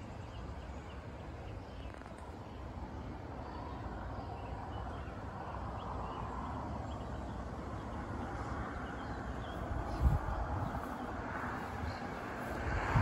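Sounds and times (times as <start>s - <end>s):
wind on microphone: 9.4s - 13.0s.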